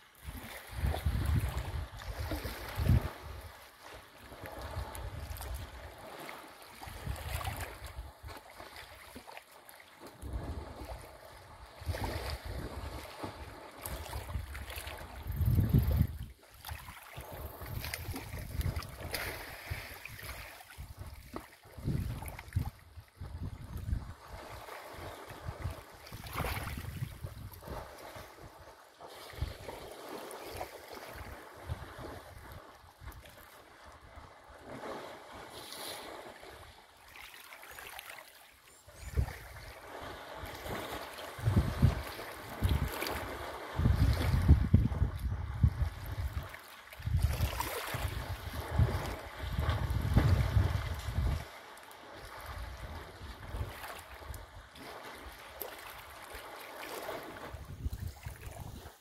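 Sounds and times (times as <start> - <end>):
water splashing and sloshing: 0.0 - 59.0
wind buffeting microphone: 0.2 - 3.6, 11.8 - 16.4, 17.3 - 29.8, 38.9 - 51.5, 57.3 - 59.0.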